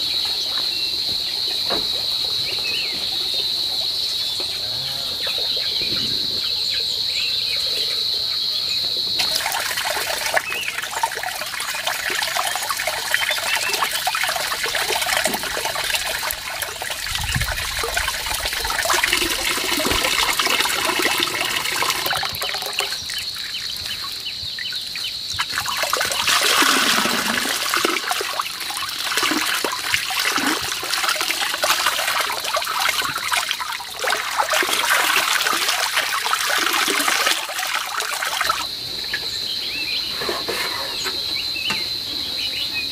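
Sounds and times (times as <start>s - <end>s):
hose water splashing into basin: 9.2s - 39.2s.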